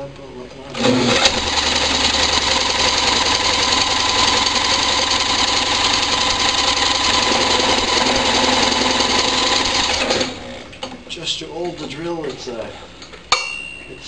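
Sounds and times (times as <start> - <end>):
electric drill spinning engine: 0.8 - 10.7.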